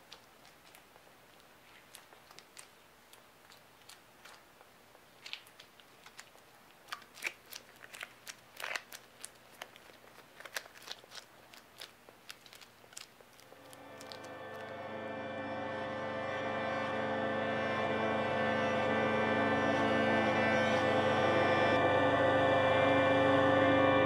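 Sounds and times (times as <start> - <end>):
clay crackling under hands: 0.0 - 14.8.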